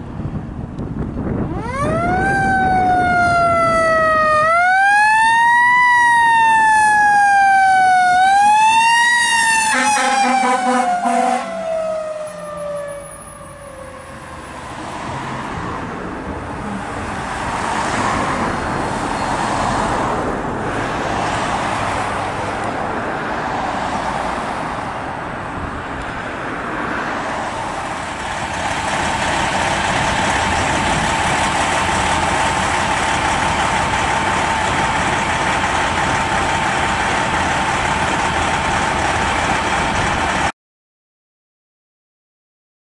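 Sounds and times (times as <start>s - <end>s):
fire engines passing: 0.0s - 40.5s
fire engine siren winding down: 1.3s - 14.9s.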